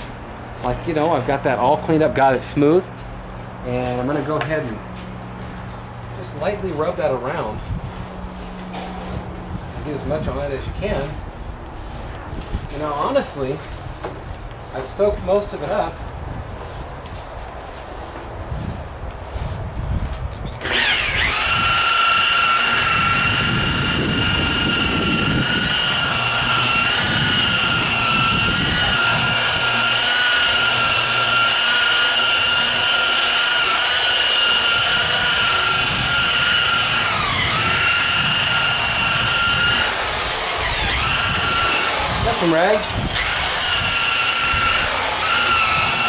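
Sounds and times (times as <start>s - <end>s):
rotary buffer whining: 19.7s - 46.0s.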